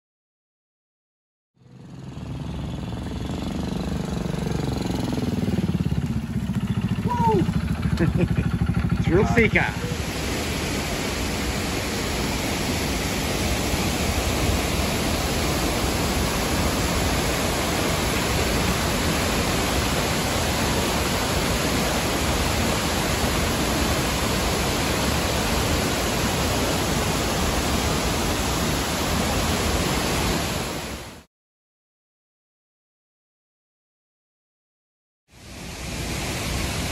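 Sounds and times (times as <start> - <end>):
waterfall rushing: 9.0 - 31.3, 35.4 - 36.9.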